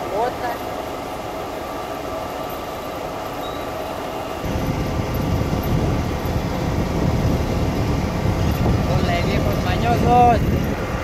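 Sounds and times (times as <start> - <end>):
diesel truck engine running: 0.0 - 11.0
steady whine: 0.0 - 11.0
heavy low rumble: 4.4 - 11.0.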